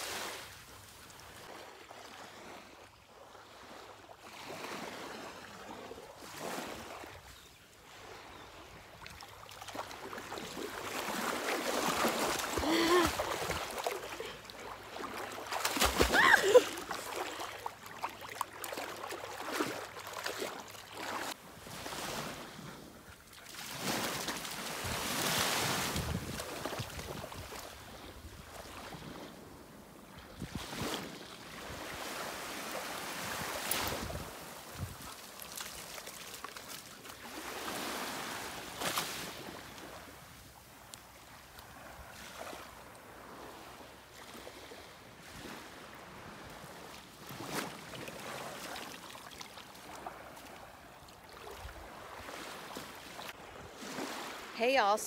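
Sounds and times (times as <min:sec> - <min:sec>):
small waves lapping: 0:00.0 - 0:55.0
wind gusting on microphone: 0:24.8 - 0:27.5.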